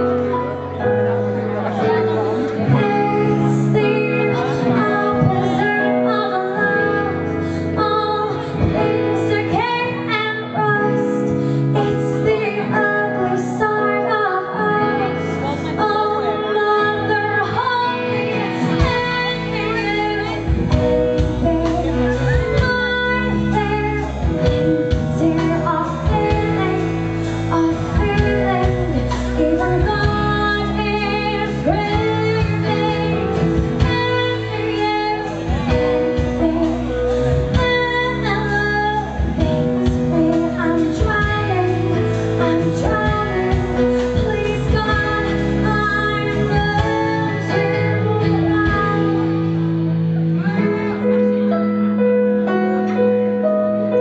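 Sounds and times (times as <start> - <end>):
band accompaniment: 0.0 - 54.0
woman singing into microphone: 1.5 - 51.8
deep bass notes: 17.9 - 54.0.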